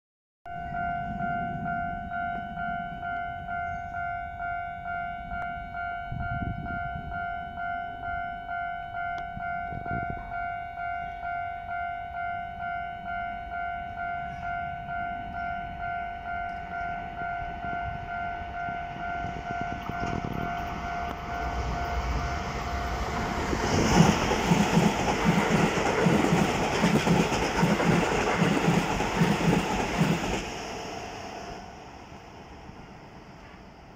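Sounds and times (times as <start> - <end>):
electric train passing: 0.5 - 33.9.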